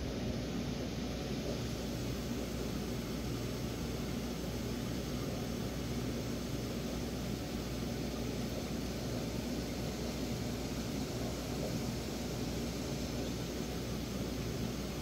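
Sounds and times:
aquarium equipment humming: 0:00.0 - 0:15.0.

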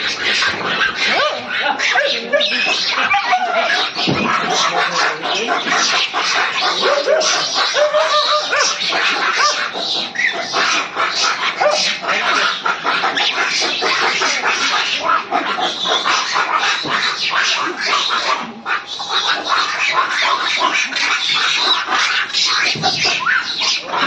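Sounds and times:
dogs snarling and growling: 0:00.0 - 0:24.0
dog yelps: 0:00.8 - 0:04.5, 0:06.7 - 0:12.4.

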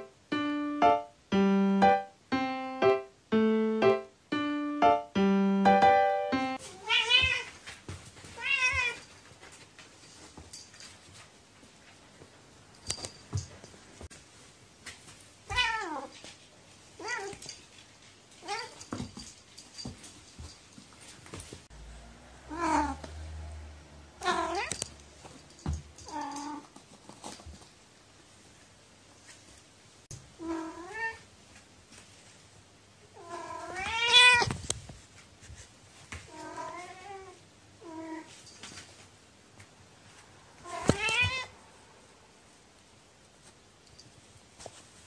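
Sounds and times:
cat meowing: 0:06.7 - 0:07.5, 0:22.5 - 0:23.0, 0:24.2 - 0:24.8, 0:33.2 - 0:34.5, 0:40.6 - 0:41.6.

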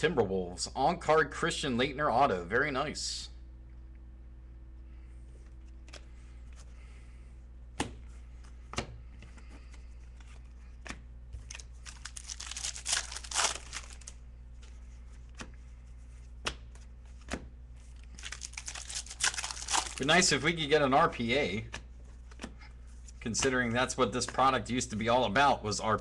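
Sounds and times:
wrapper tearing and crinkling: 0:11.4 - 0:14.2, 0:18.0 - 0:20.3.

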